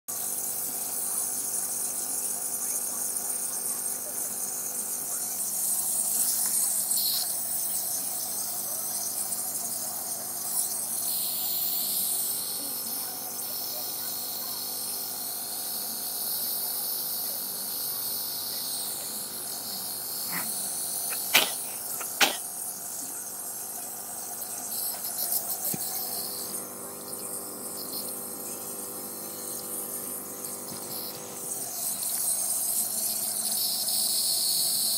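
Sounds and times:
nebulizer compressor hum and hiss: 0:00.1 - 0:34.9.

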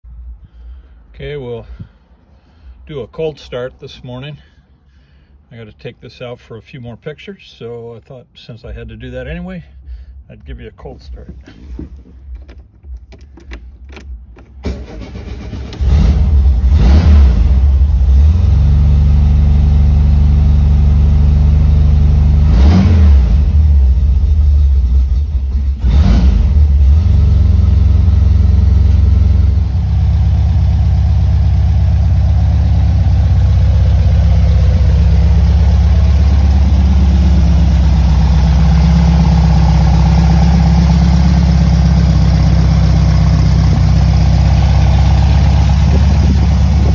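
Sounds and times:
air-cooled engine revving and idling: 0:11.1 - 0:46.9.

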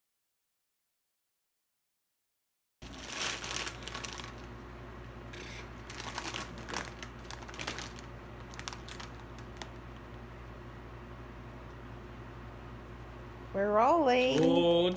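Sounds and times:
chip bag crinkling: 0:02.8 - 0:04.6, 0:05.4 - 0:10.1.

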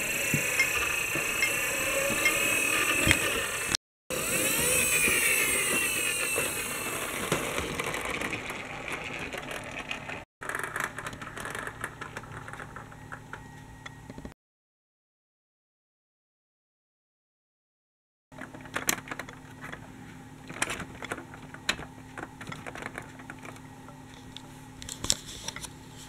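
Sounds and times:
toy vehicle gears whirring: 0:00.0 - 0:12.9.

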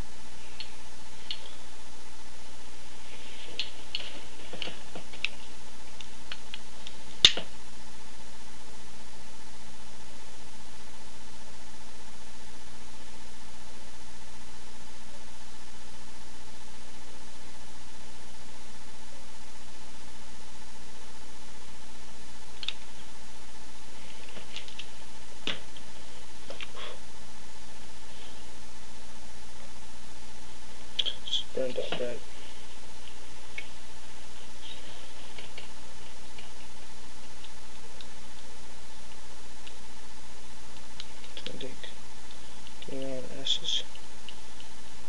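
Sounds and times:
background hiss: 0:00.0 - 0:45.0
faint hum: 0:00.0 - 0:45.0
small sharp clicks: 0:22.6 - 0:22.8.

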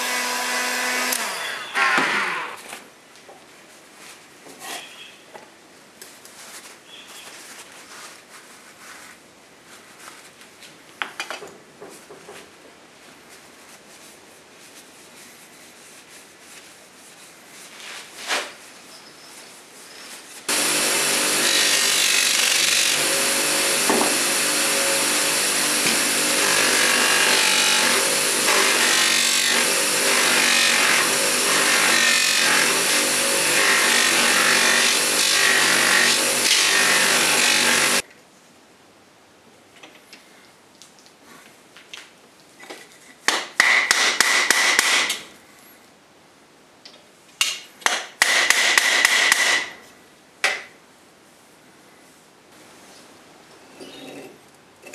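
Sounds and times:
buffing wheel motor: 0:20.5 - 0:38.0.

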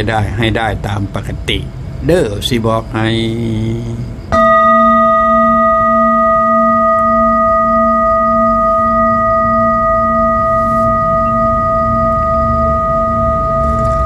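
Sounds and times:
metal singing bowl ringing: 0:04.3 - 0:14.0.

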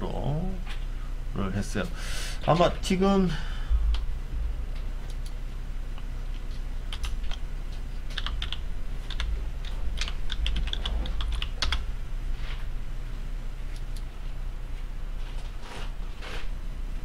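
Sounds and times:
low steady hum: 0:00.0 - 0:17.0
computer keyboard typing: 0:06.9 - 0:07.4, 0:08.1 - 0:11.8.

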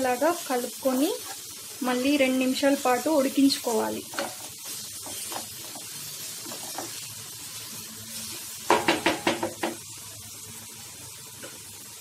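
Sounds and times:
curry sizzling in pan: 0:00.0 - 0:12.0
spatula knocking on pan: 0:08.7 - 0:09.8.

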